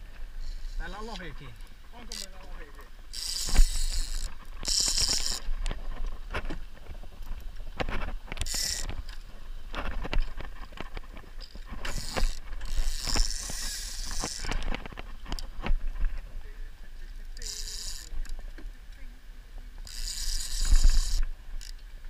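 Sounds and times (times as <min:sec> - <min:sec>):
fishing reel clicking and ratcheting: 0:02.0 - 0:05.5, 0:08.4 - 0:09.2, 0:11.4 - 0:14.8, 0:17.4 - 0:18.4, 0:19.8 - 0:21.8.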